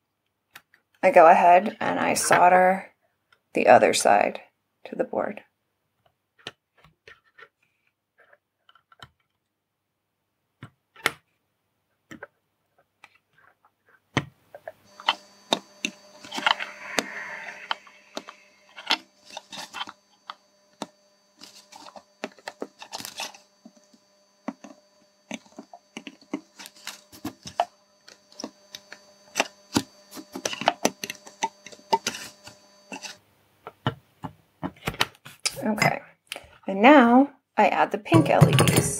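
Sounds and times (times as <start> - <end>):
faint electrical hum: 14.6 - 34.6.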